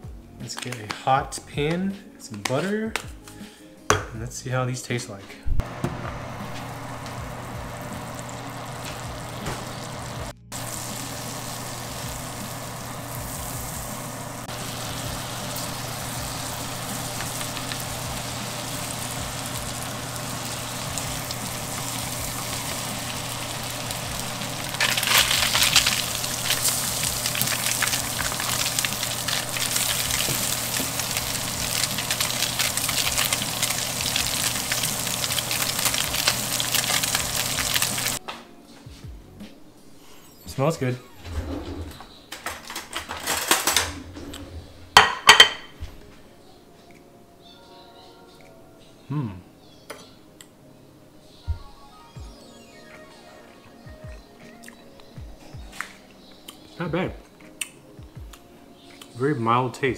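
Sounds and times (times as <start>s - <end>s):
fish sizzling in butter: 5.8s - 38.2s.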